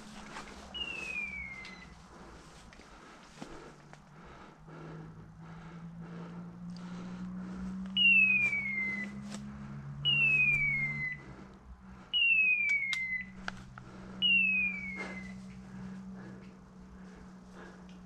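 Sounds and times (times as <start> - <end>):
electronic collar whistles: 0.8 - 2.0, 8.0 - 9.2, 10.0 - 11.2, 12.1 - 13.4, 14.2 - 15.4
twigs snapping in brush: 8.4 - 9.5.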